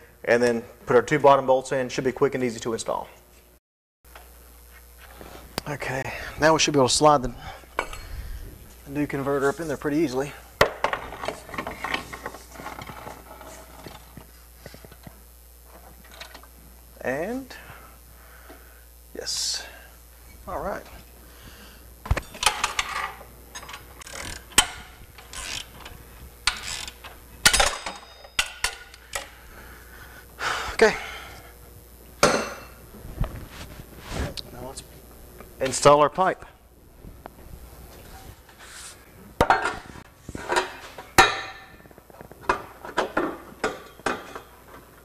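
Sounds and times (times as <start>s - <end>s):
ratchet turning bolts: 23.6s - 29.0s.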